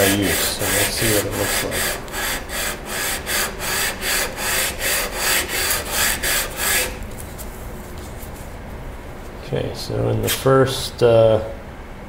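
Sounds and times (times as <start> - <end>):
metal rasping on sandpaper: 0.0 - 7.4.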